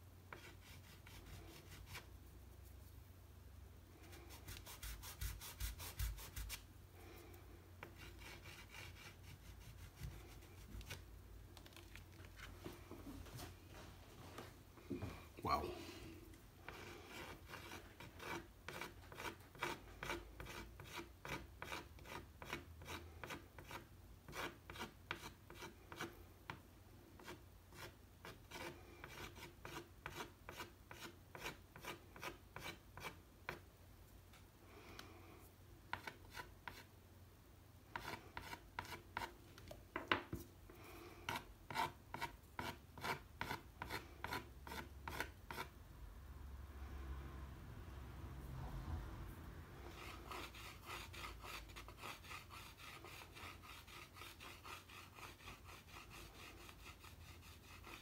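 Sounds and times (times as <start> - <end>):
pastel scratching on paper: 0.3 - 2.1, 4.1 - 6.6, 7.8 - 11.1, 16.7 - 26.2, 49.9 - 58.0.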